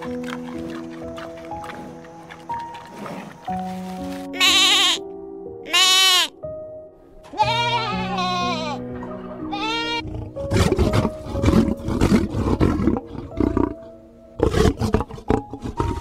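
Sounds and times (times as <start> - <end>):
background music: 0.0 - 16.0
goat bleating: 4.3 - 5.0, 5.7 - 6.3, 7.3 - 8.8, 9.5 - 10.1
lion roaring: 10.0 - 16.0.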